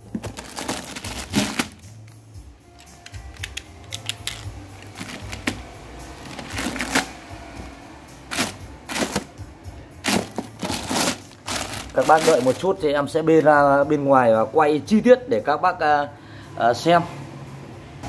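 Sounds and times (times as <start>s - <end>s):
plastic bag crinkling: 0.0s - 1.8s, 4.3s - 5.6s, 6.2s - 7.1s, 8.3s - 9.3s, 10.0s - 12.8s.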